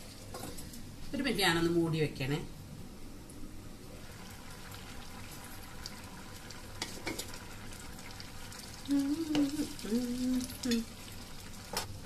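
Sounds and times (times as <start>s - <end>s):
curry sizzling in a pot: 4.0s - 12.0s.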